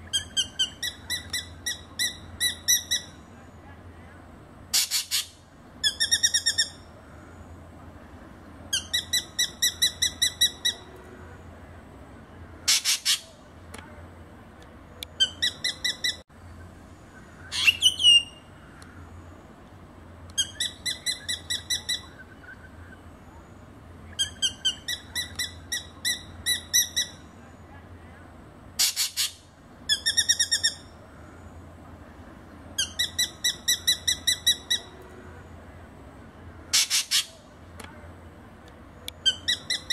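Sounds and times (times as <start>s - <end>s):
harsh bird calls: 12.5s - 13.4s, 15.1s - 19.3s, 24.0s - 27.3s, 36.6s - 37.5s.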